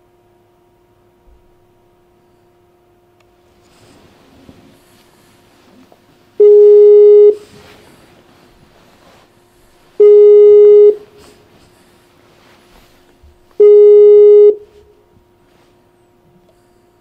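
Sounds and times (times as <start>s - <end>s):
phone ringing tone beeps: 6.4s - 7.4s, 10.0s - 11.1s, 13.6s - 14.7s.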